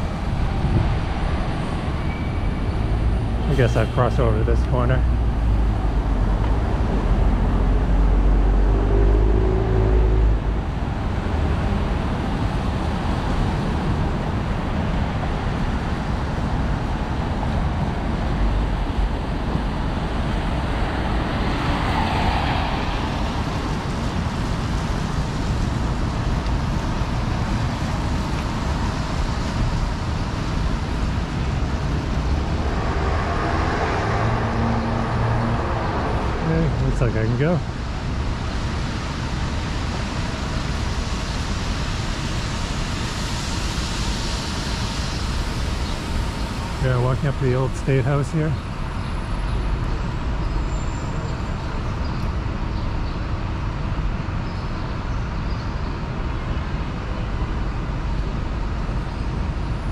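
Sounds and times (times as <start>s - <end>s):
deep vehicle engine rumble: 0.0s - 40.5s
tyres on wet pavement: 0.0s - 40.8s
car engines: 0.0s - 59.9s.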